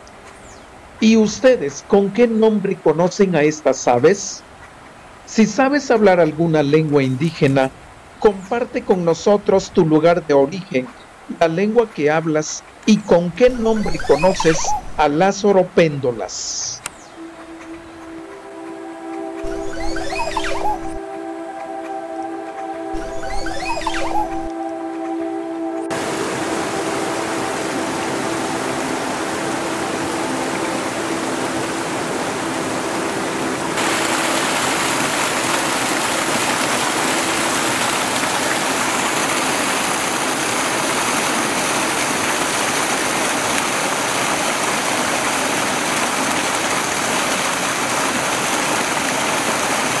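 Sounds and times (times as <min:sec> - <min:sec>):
stream splashing between boulders: 0:33.8 - 0:50.0.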